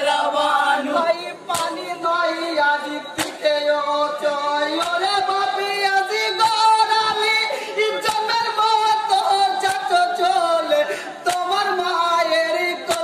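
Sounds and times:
group singing: 0.0 - 13.0
sharp percussive beat: 3.0 - 7.4.

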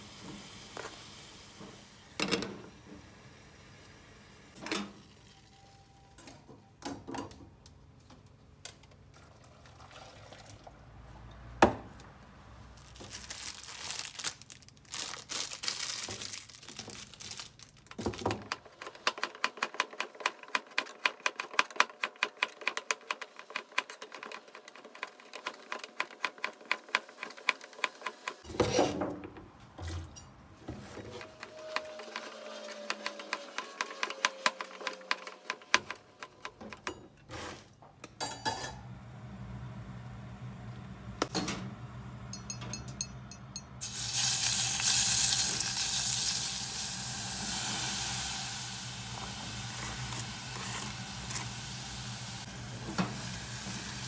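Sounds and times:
plastic crinkling: 12.8 - 18.5.

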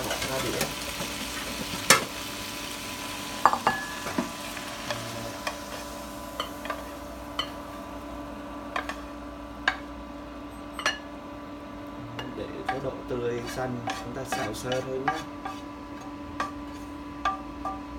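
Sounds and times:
oil sizzling in frying pan: 0.0 - 11.6
steady hum: 0.1 - 17.9
wooden spatula scraping pan: 12.7 - 17.0.

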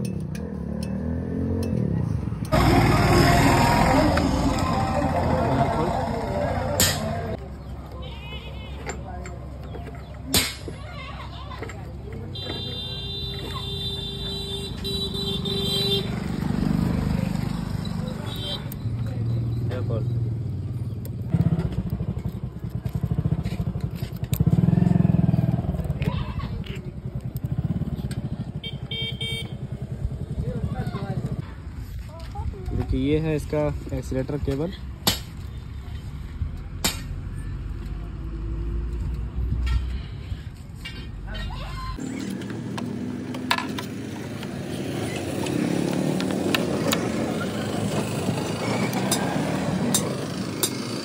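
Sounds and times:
motorcycle engine running: 0.2 - 7.4, 20.4 - 31.5
vehicle engine running: 2.4 - 7.4.

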